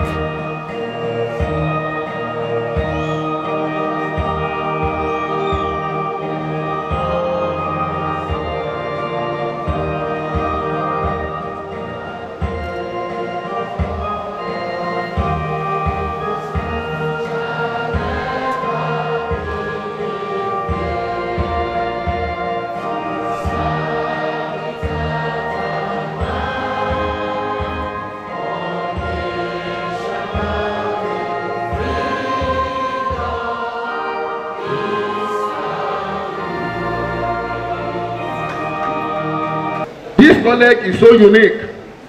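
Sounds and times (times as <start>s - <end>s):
instrumental backing with low beat: 0.0s - 33.6s
large group singing: 0.0s - 39.9s.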